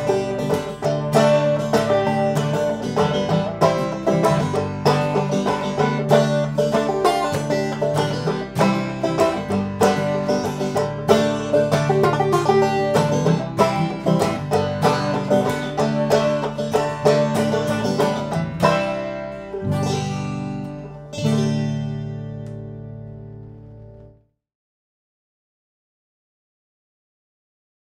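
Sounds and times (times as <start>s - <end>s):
banjo picking: 0.0s - 24.1s
acoustic guitar: 0.0s - 24.3s.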